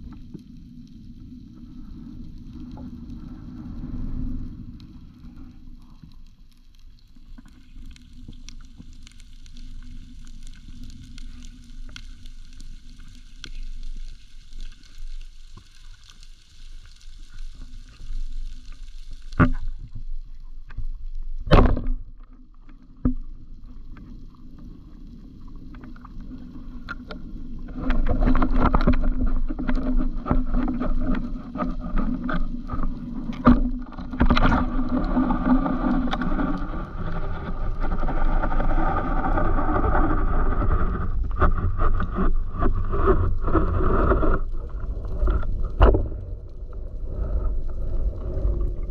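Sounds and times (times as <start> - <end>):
faint crackles: 0.0 - 48.9
low rumble of moving water: 0.0 - 48.9
churning water with clicks: 6.8 - 48.9.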